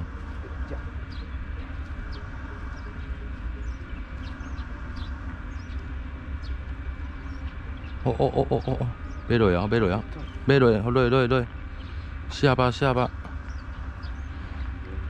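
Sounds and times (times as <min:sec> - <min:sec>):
bird chirps: 0:00.0 - 0:15.0
faint steady whine: 0:00.0 - 0:15.0
low rumble: 0:00.0 - 0:15.0.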